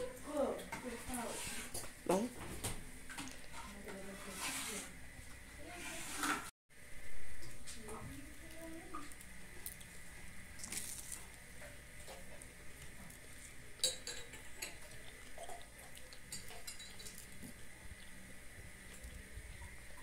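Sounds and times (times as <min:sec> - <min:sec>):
dishes and cutlery clinking: 0:13.8 - 0:17.5.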